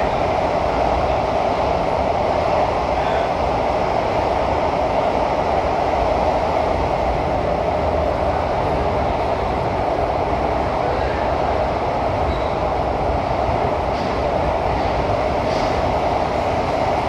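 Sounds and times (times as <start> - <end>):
train carriage running rumble: 0.0 - 17.0.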